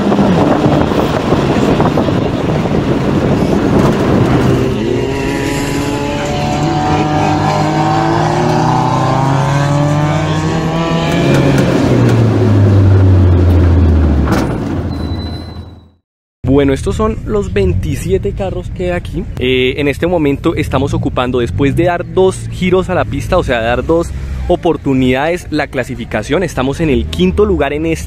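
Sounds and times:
wind noise on microphone: 0:00.0 - 0:13.2
car engines revving: 0:00.0 - 0:15.0, 0:19.7 - 0:28.0.

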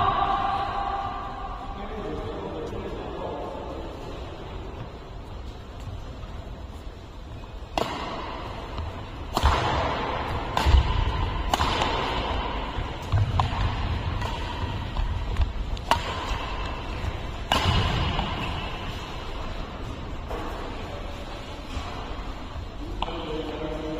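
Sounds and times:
racket hitting shuttlecock: 0:07.7 - 0:20.7.

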